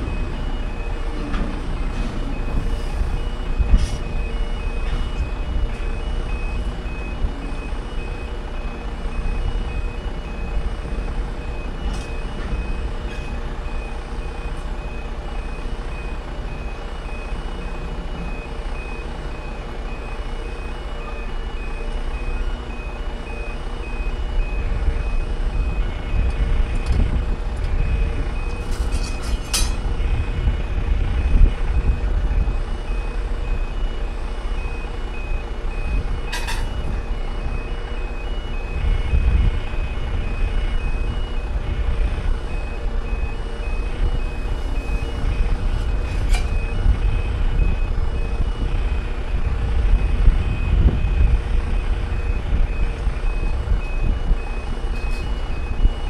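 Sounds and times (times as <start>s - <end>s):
two-tone crossing alarm: 0.0s - 56.0s
low rumble: 38.2s - 56.0s.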